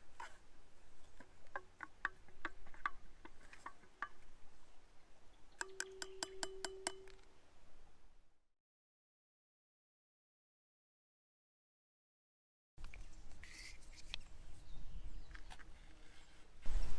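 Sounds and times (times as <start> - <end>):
metal spoon clinking in metal bottle: 5.6 - 7.2.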